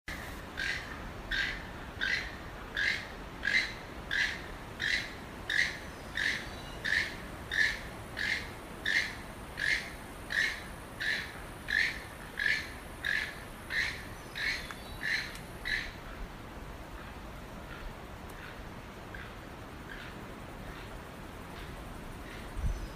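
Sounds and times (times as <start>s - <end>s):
toucan harsh calls: 0.6s - 16.0s.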